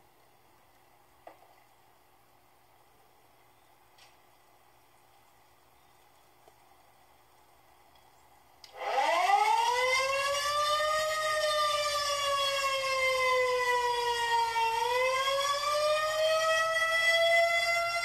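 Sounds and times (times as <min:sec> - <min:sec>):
tornado siren wailing: 0:08.7 - 0:18.0.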